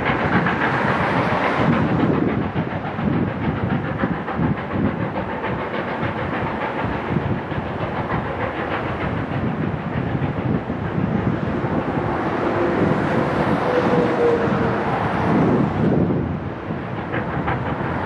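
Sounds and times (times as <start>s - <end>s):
steam locomotive hiss and exhaust: 0.0s - 18.0s
train wheels clicking over rail joints: 0.0s - 18.0s.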